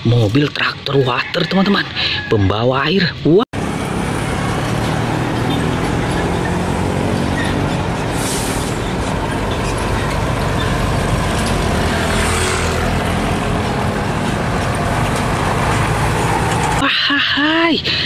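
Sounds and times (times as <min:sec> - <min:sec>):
diesel truck engine passing: 0:03.6 - 0:18.0
short air hisses: 0:08.2 - 0:08.8.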